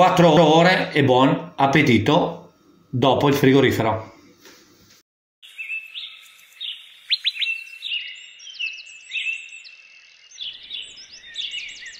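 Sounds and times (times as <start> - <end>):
birds chirping and calling: 5.4 - 11.9.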